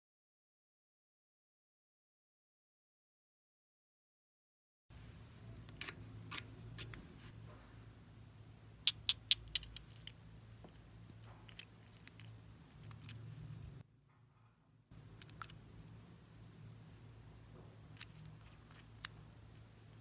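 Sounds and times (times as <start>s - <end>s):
faint low hum: 4.9s - 20.0s.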